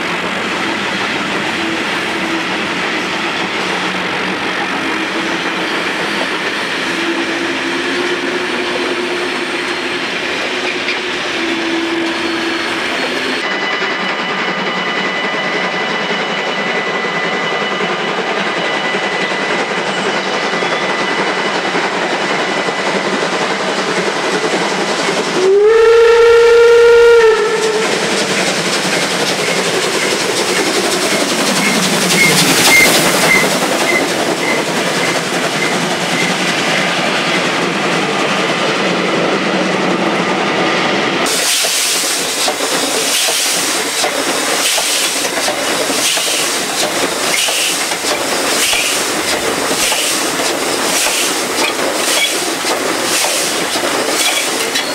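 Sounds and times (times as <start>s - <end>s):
steam locomotive running: 0.0s - 54.9s
train wheels clickety-clack: 0.0s - 54.9s
steam whistle blast: 11.2s - 12.8s, 25.4s - 28.1s.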